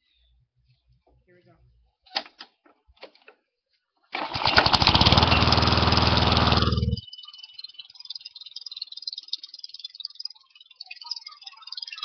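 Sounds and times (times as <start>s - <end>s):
lawn mower engine starting and running: 4.1s - 7.0s.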